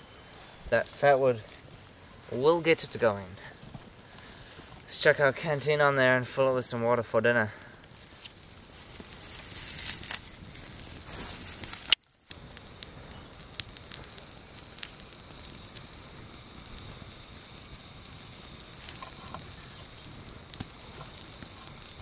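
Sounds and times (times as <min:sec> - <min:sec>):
fire hiss: 0:00.0 - 0:22.0
campfire crackling and popping: 0:00.7 - 0:05.5, 0:07.6 - 0:22.0.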